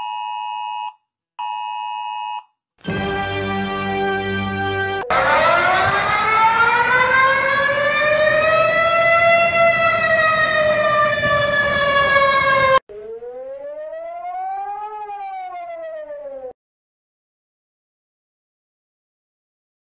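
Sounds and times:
quieter siren rising: 0:02.9 - 0:16.6
warning siren wailing: 0:02.9 - 0:16.6.

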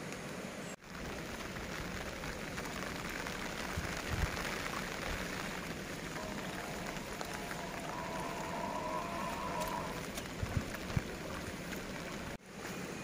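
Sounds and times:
rain falling: 0:00.1 - 0:12.4
wind thumps on microphone: 0:03.6 - 0:05.2, 0:10.2 - 0:11.2.

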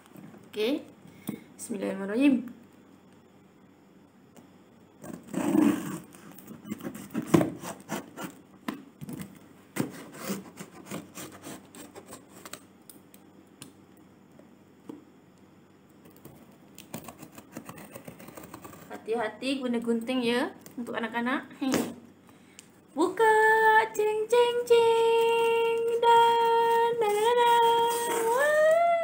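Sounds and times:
scissors slicing packing tape: 0:25.2 - 0:28.5.

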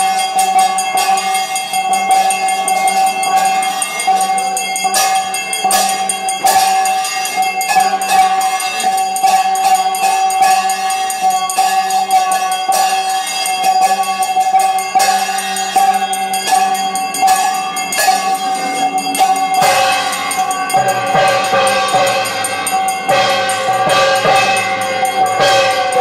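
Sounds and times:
brass hand bell ringing: 0:00.0 - 0:26.0
jingling percussion: 0:00.0 - 0:26.0
temple music: 0:15.7 - 0:26.0.

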